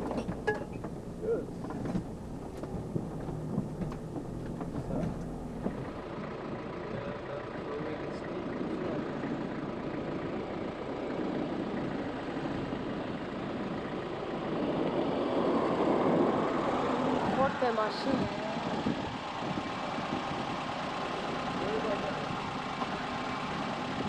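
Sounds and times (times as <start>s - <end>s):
vehicle body rattling and knocking: 0.0s - 14.6s, 17.2s - 24.0s
van engine hum: 0.0s - 24.0s.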